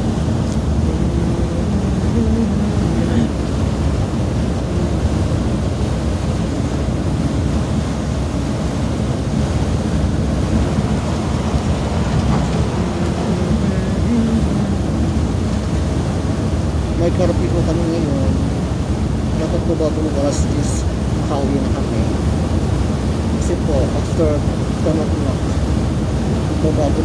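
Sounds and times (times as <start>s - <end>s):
bus road and engine noise: 0.0s - 27.0s.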